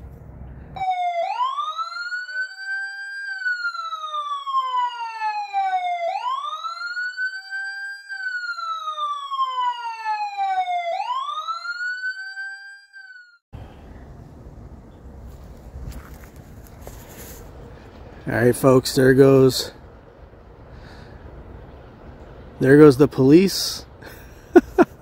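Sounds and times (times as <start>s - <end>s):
police siren wailing: 0.8s - 13.4s.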